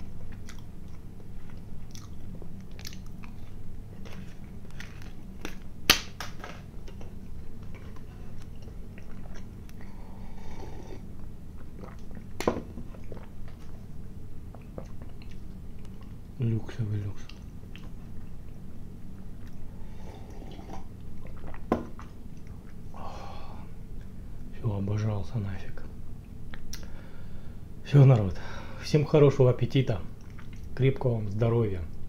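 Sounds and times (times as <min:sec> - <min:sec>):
low steady hum: 0:00.0 - 0:32.0
mouth chewing smacks and clicks: 0:00.3 - 0:03.6, 0:11.6 - 0:13.7, 0:14.5 - 0:16.2, 0:30.2 - 0:30.7.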